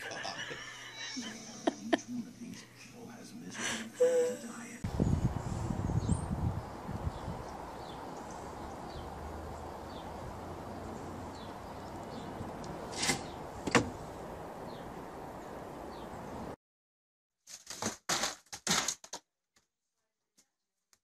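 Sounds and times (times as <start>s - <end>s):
outdoor background noise: 0.0s - 16.6s.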